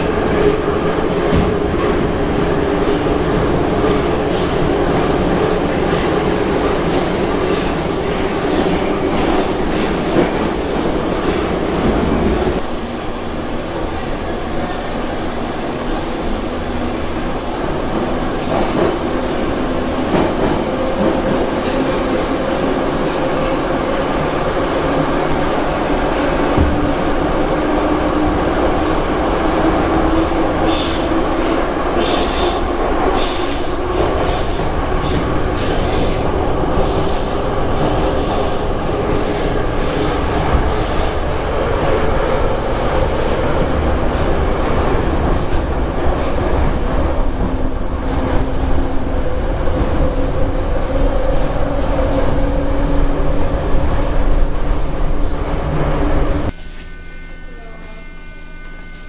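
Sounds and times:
metro train rumbling in tunnel: 0.0 - 59.0
high-pitched wheel squeals: 56.5 - 59.0.

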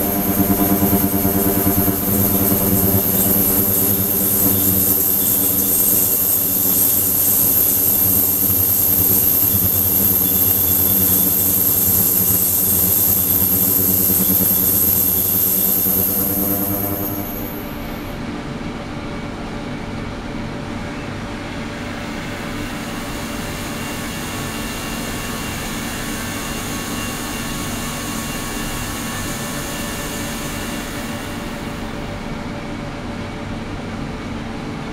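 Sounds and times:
ultrasonic cleaner hissing: 0.0 - 18.1
hum with high whine: 0.0 - 18.2.

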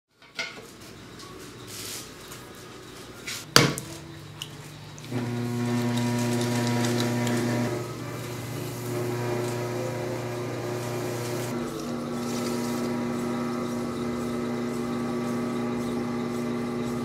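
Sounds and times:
potter's wheel motor hum: 4.7 - 17.0.

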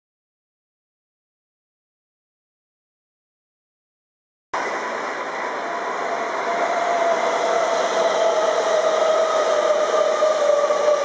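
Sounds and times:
electric train passing: 4.6 - 11.0.

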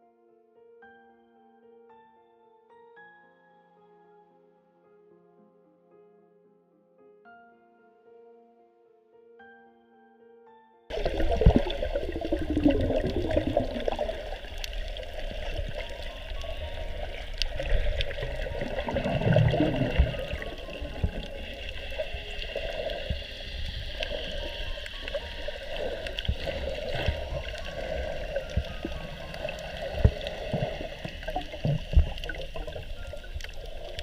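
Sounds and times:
low underwater rumble: 10.9 - 34.0
low water surge: 10.9 - 34.0
water rushing and gurgling underwater: 10.9 - 34.0.

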